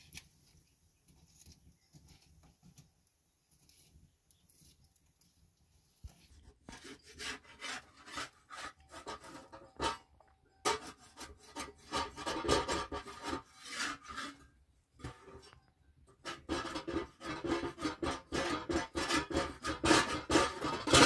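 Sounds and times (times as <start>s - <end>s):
metal utensil scraping metal pan: 6.3s - 21.0s.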